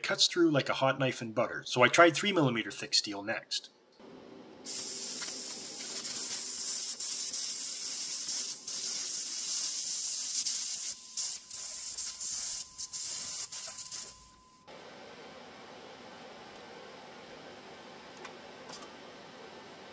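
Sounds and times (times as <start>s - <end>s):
compressed air hissing from nozzle: 4.7s - 14.3s.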